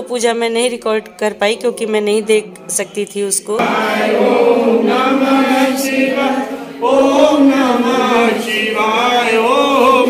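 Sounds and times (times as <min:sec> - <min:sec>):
voices chanting a mantra: 0:03.6 - 0:10.0.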